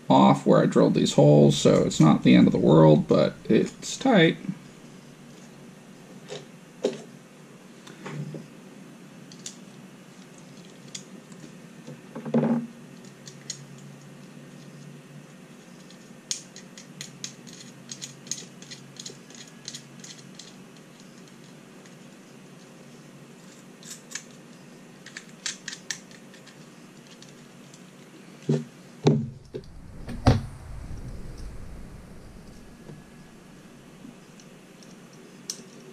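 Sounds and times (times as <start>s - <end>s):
light clicks of small parts: 9.3s - 12.0s, 13.0s - 14.9s, 15.7s - 22.7s, 23.4s - 28.2s, 34.4s - 35.9s.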